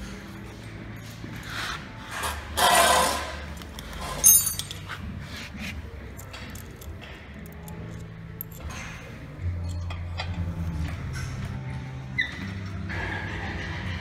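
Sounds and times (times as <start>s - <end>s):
metal parts ticking and knocking: 3.6s - 4.9s, 6.1s - 10.8s
ringing metal clink: 3.8s - 4.9s, 6.2s - 10.4s.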